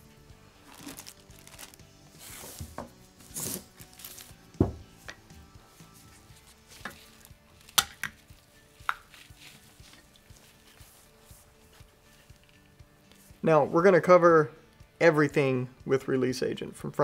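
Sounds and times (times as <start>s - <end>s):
low thump: 4.6s - 4.8s.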